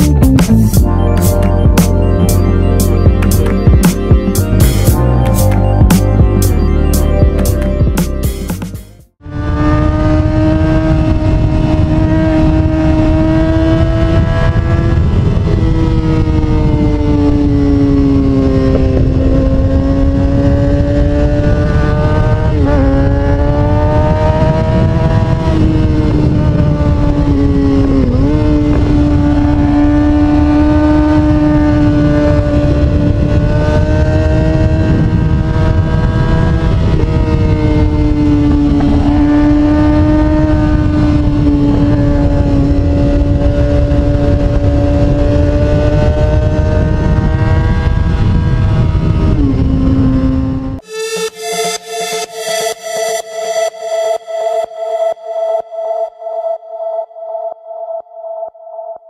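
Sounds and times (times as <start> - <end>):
motorcycle engine at high revs: 9.2 - 50.8
wind rush: 9.2 - 50.8.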